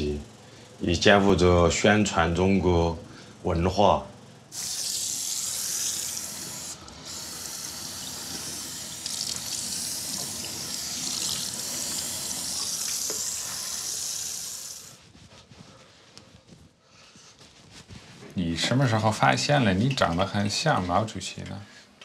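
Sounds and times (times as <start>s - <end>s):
water pouring from a tap: 4.6s - 13.8s.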